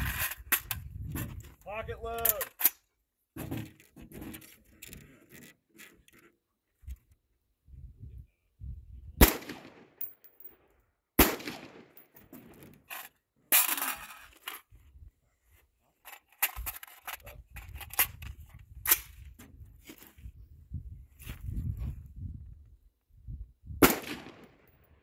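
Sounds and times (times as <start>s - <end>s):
rifle shots: 9.2s - 9.9s, 11.2s - 12.0s, 23.8s - 24.8s.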